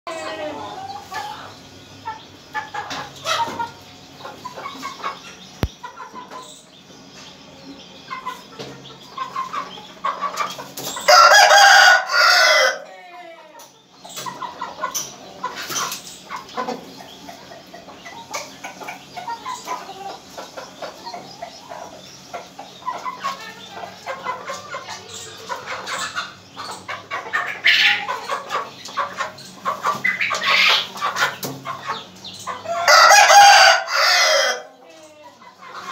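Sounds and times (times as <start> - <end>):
roosters clucking: 0.1 - 35.9
rooster crowing: 11.1 - 13.0, 32.7 - 34.8.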